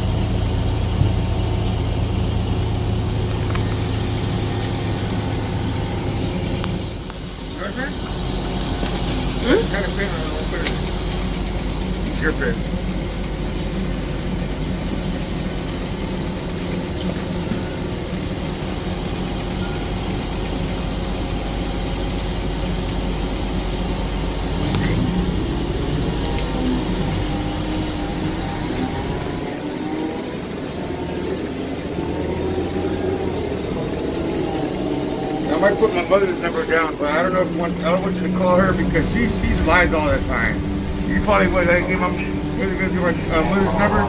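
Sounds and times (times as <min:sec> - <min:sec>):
bus engine and road noise: 0:00.0 - 0:44.0
faint gliding whine: 0:24.8 - 0:44.0.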